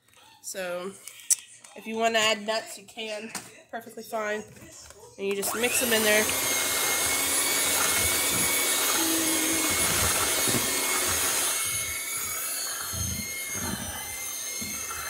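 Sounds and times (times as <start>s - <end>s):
electric hand mixer running: 5.3s - 15.0s.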